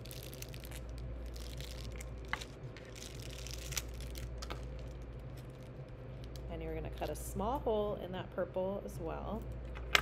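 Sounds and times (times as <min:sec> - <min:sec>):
plastic bag crinkling: 0:00.0 - 0:07.0
low steady hum: 0:00.0 - 0:10.0.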